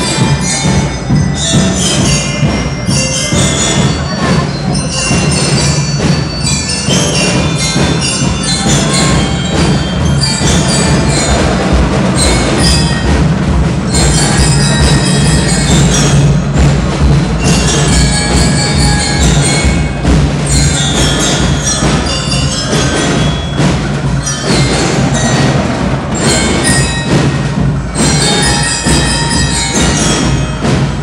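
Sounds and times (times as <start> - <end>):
drums: 0.0 - 31.0
glockenspiel ringing notes: 0.0 - 31.0
marching band playing: 0.0 - 31.0.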